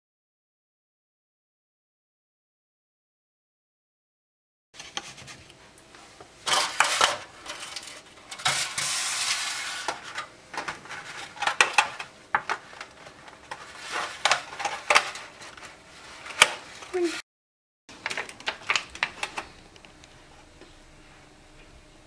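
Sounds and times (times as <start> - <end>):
rubbing sound: 6.5 - 10.2, 13.0 - 17.2.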